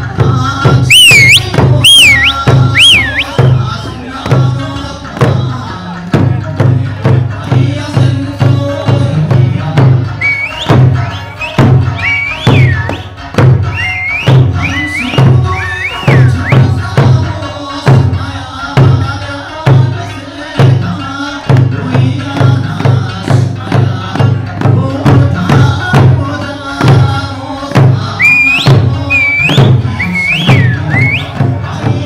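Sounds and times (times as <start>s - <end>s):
lively folk music: 0.0s - 32.0s
taiko drums beating: 0.1s - 18.2s, 20.6s - 32.0s
shrill rising whistles: 0.9s - 3.6s, 10.2s - 13.1s, 13.7s - 16.7s, 28.2s - 31.4s.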